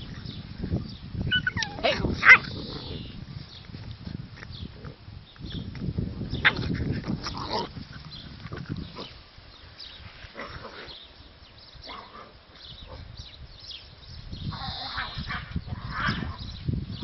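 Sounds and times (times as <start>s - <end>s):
puppies yipping: 1.3s - 3.2s.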